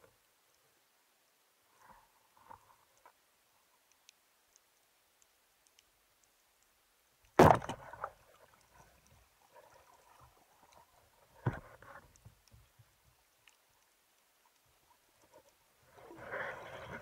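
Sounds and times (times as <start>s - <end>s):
speargun firing thump: 7.4s - 7.8s.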